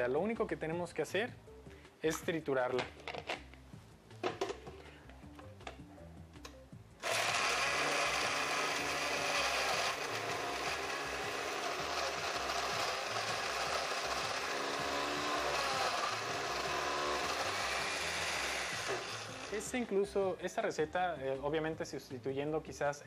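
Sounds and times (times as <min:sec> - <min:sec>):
blender crushing fruit: 0:07.0 - 0:19.8.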